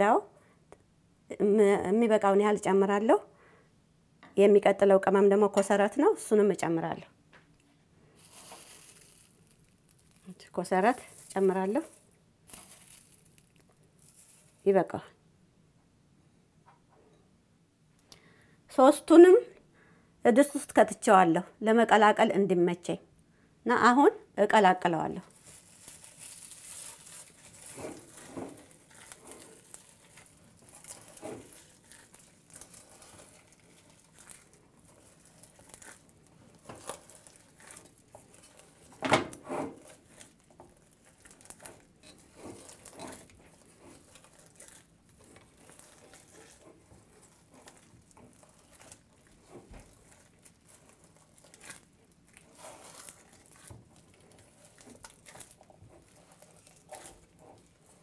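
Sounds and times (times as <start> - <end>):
plastic glove squishing butter: 8.1 - 15.1, 24.8 - 58.0.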